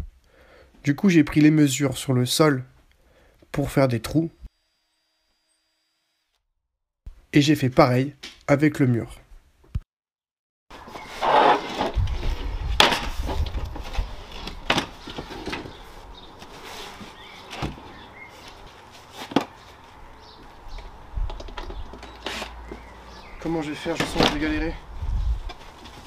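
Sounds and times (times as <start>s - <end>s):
wooden boards scraping: 10.8s - 19.9s.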